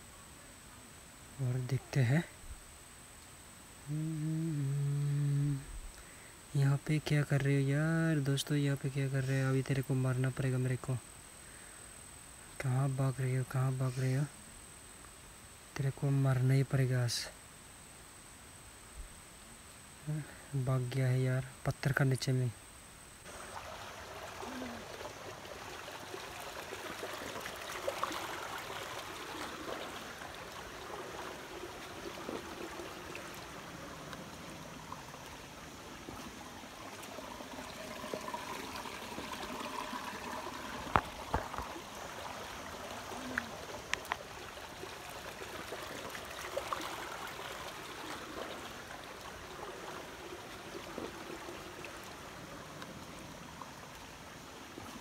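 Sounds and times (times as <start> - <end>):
stream trickling over rocks: 23.2 - 55.0.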